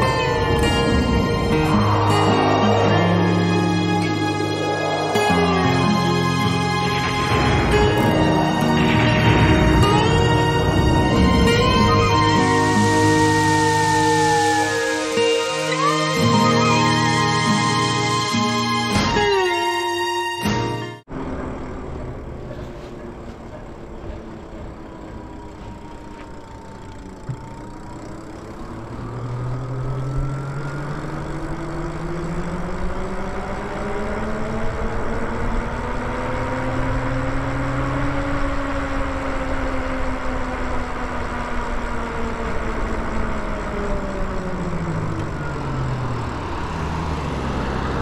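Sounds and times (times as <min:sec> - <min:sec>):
rushing wind: 0:00.0 - 0:15.4
electric bike motor whining: 0:00.0 - 0:20.0, 0:21.1 - 0:48.0.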